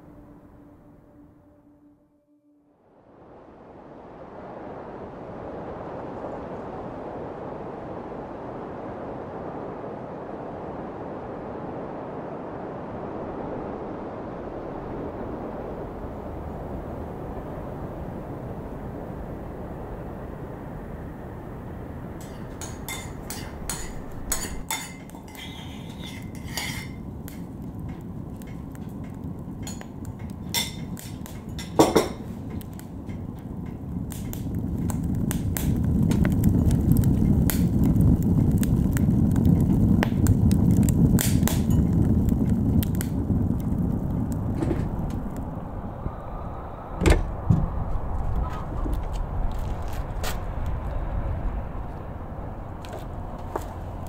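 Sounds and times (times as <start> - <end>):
fire rushing: 3.0 - 54.0
firewood crackling and popping: 14.6 - 46.4, 47.0 - 54.0
loud thump: 47.0 - 47.8.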